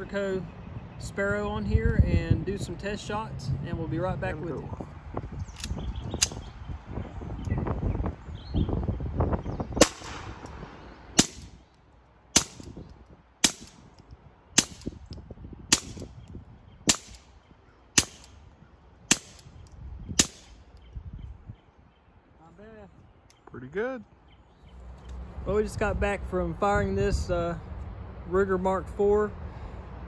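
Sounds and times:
suppressed pistol shots: 9.8 - 10.6, 11.2 - 11.6, 12.4 - 12.8, 13.4 - 13.9, 14.6 - 15.0, 15.7 - 16.1, 16.9 - 17.3, 18.0 - 18.4, 19.1 - 19.5, 20.2 - 20.6.

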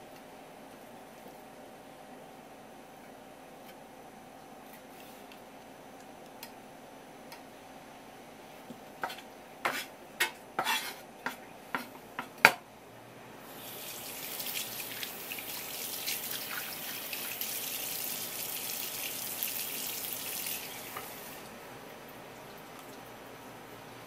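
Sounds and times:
tap water running: 13.5 - 23.2.

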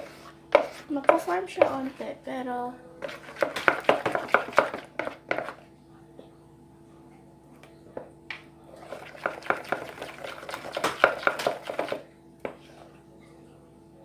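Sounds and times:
spoon knocking and scraping bowl: 3.0 - 5.6.

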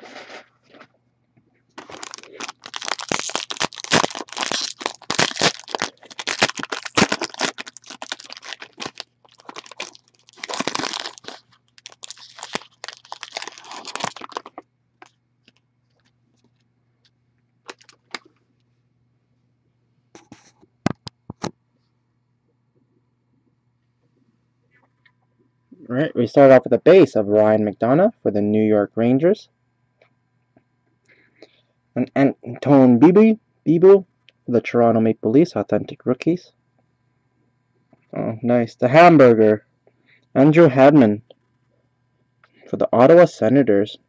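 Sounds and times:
foil wrapper tearing and crinkling: 1.8 - 14.6, 17.7 - 18.3.

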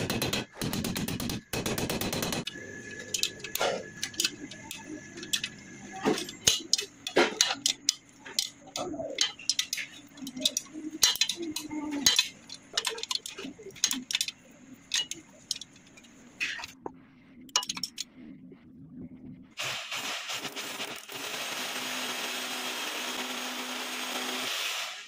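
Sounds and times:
spanner clinking on a nut: 2.4 - 16.0, 17.5 - 18.1.

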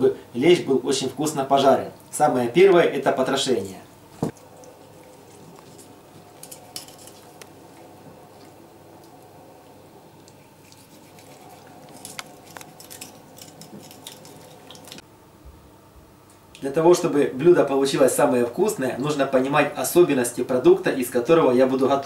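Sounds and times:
faint steady hum: 0.0 - 22.0
knife clicking and scraping fish: 5.1 - 7.5, 10.2 - 15.0.

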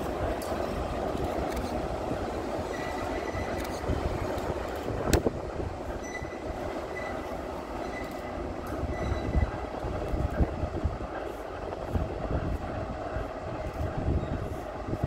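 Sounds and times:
train rumbling on track: 0.0 - 15.0
wheel squeal: 6.0 - 8.3, 8.9 - 9.5.

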